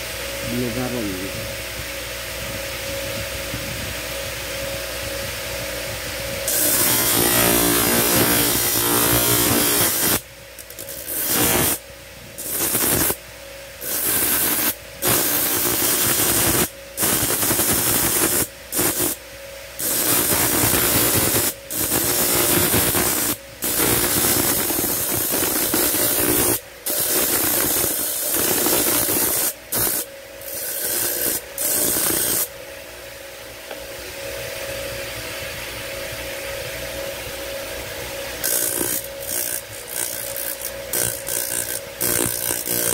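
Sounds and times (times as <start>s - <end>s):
grinder motor running: 6.4s - 11.8s, 12.4s - 13.2s, 13.8s - 19.2s, 19.8s - 32.5s, 38.3s - 42.9s
grinding disc rasping on steel: 6.5s - 11.8s, 12.4s - 13.2s, 13.8s - 19.2s, 19.8s - 32.5s, 38.4s - 42.9s.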